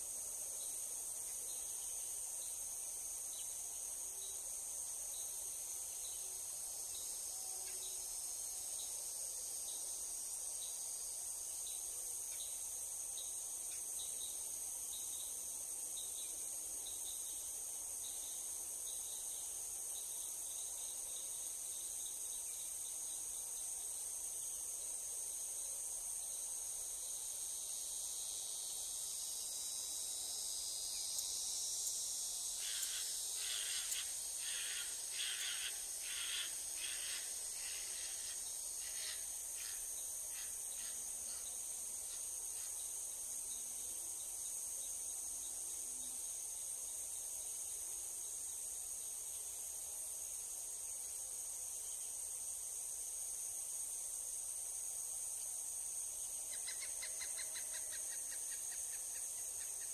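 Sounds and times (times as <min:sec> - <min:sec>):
crickets and insects chirping: 0:00.0 - 0:59.9.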